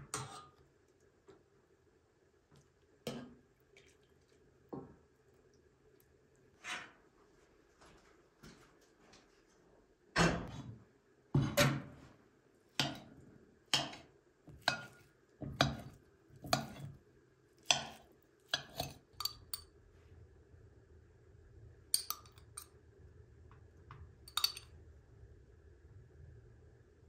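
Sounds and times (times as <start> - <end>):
metal utensils clinking on dishes: 17.7 - 19.6, 22.0 - 22.7, 24.3 - 24.7.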